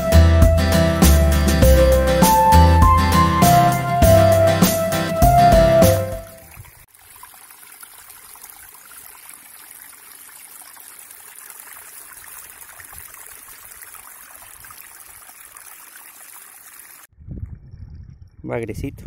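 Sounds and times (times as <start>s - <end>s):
stream trickling over rocks: 6.2s - 17.1s.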